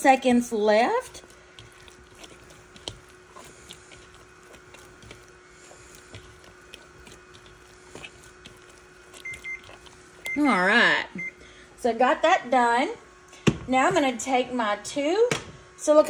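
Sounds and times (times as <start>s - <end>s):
dough squishing: 0.0s - 12.3s
faint steady hum: 0.0s - 16.0s.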